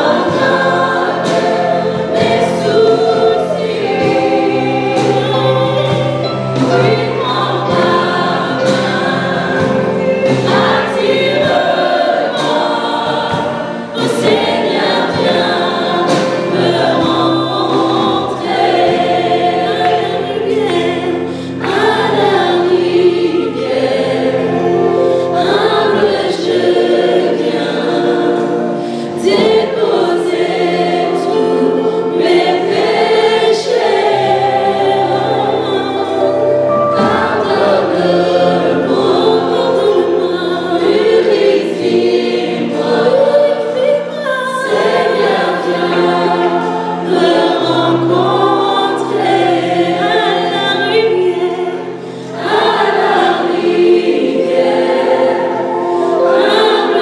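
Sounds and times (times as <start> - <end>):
choir singing: 0.0 - 57.0
low accompaniment chords: 0.0 - 57.0
woman singing lead: 42.8 - 53.3.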